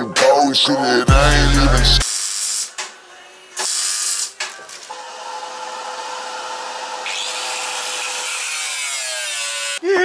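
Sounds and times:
hiss: 2.0 - 2.9, 3.6 - 4.4
power tool whining: 4.6 - 9.8.

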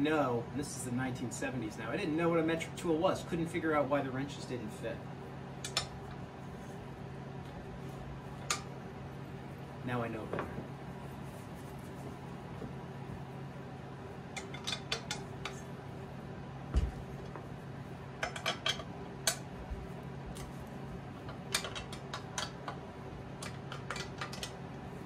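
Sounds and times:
steady low hum: 0.0 - 25.0
metal tools clinking and tapping: 14.4 - 15.7, 18.2 - 19.4.

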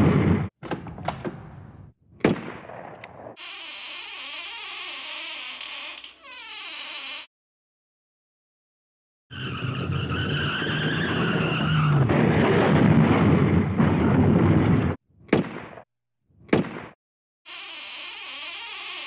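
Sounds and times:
car tyres screeching: 9.3 - 12.0.

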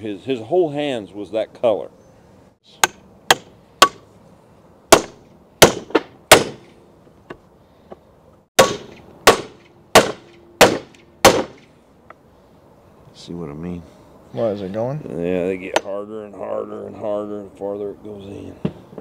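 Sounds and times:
hammer striking metal: 2.8 - 4.0, 8.6 - 11.7.

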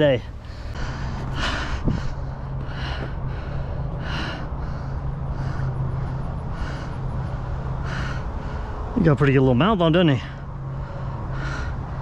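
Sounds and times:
man breathing heavily: 0.0 - 9.1, 10.1 - 12.0
steady low hum: 0.0 - 12.0.

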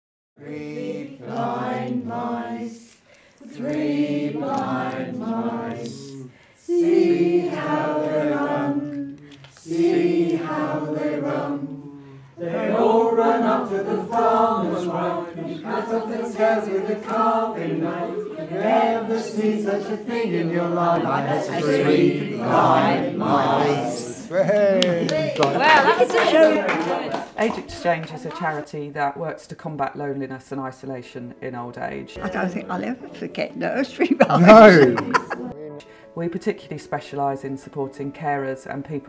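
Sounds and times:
group of voices singing: 0.4 - 27.4, 34.3 - 35.6.

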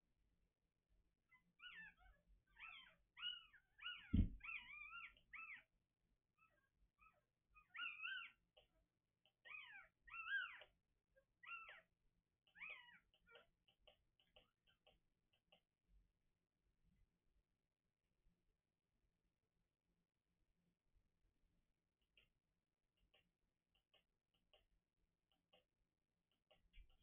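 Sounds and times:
newborn puppies squealing: 1.3 - 5.8, 6.4 - 8.5, 9.4 - 13.5
soft thump: 4.1 - 4.4.

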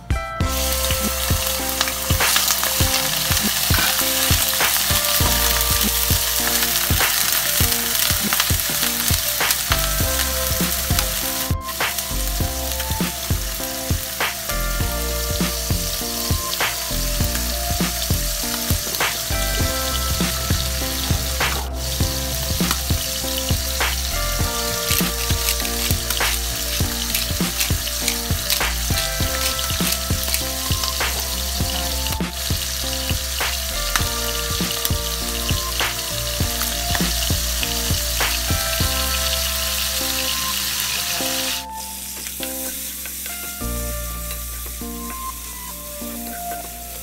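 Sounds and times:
livers sizzling in oil: 0.5 - 47.0.

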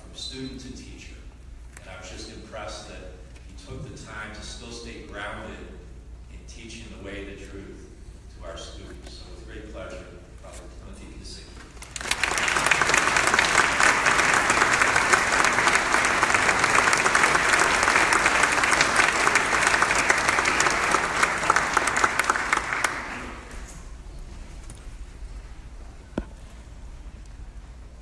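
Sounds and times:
audience applauding: 11.8 - 23.7.

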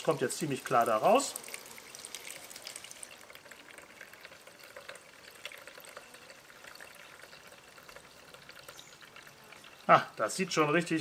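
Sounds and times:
juice trickling through sieves: 0.0 - 11.0
small drips: 0.0 - 11.0.

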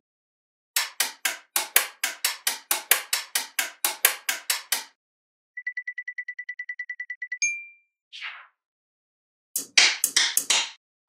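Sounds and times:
sharp clicks: 0.8 - 5.0.

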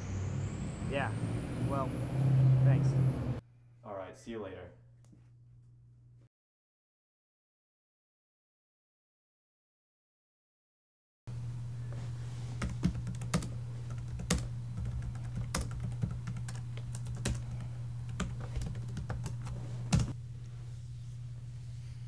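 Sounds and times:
low hum: 0.0 - 3.8, 11.3 - 22.0
computer keyboard typing: 12.6 - 20.2.

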